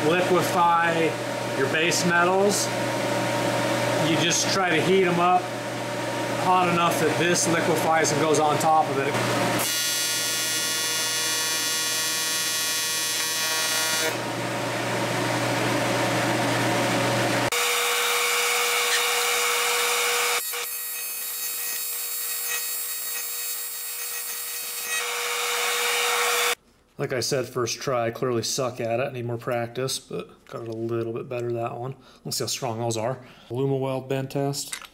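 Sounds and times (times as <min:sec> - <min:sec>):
welding arc buzzing and hissing: 0:09.1 - 0:14.4, 0:17.2 - 0:26.6.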